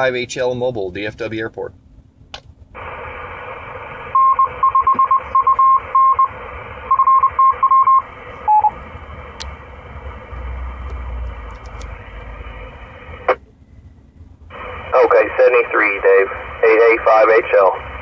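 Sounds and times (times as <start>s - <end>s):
radio carrier hiss: 2.8s - 4.2s, 14.5s - 18.0s
morse code beeps: 4.1s - 6.3s, 6.9s - 8.8s.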